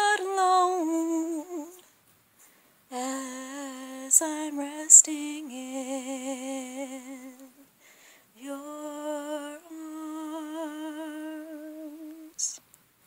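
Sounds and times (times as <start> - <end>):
woman singing with vibrato: 0.0 - 1.8, 2.9 - 7.7, 8.4 - 12.6
woman breathing: 2.4 - 2.9, 7.7 - 8.4.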